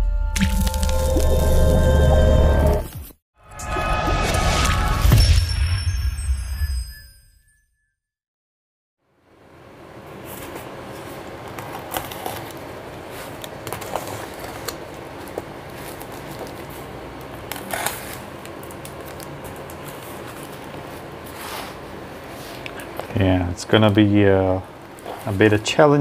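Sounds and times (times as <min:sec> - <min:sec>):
knife cutting packing tape: 0:11.5 - 0:12.7, 0:17.3 - 0:20.8.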